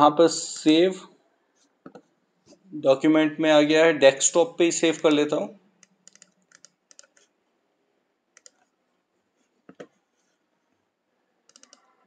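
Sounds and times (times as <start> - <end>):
mouse clicks: 5.8 - 7.3, 8.4 - 8.6, 11.5 - 11.9
keyboard keystrokes: 11.5 - 11.8.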